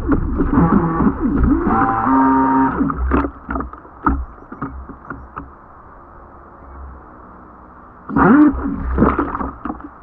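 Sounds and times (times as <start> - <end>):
water splashing: 0.0 - 5.4, 8.1 - 10.0
rumble of moving water: 0.0 - 10.0.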